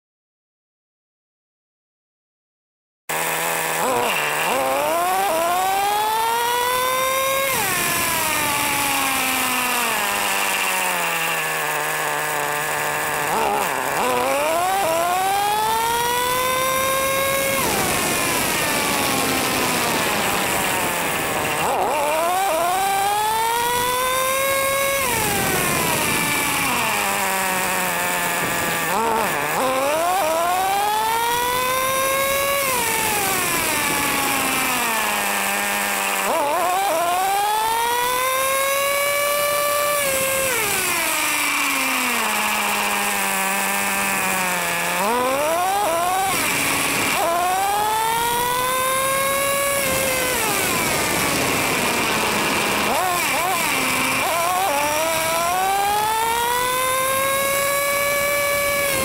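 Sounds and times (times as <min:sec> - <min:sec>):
model engine revving: 0:03.1 - 0:59.0.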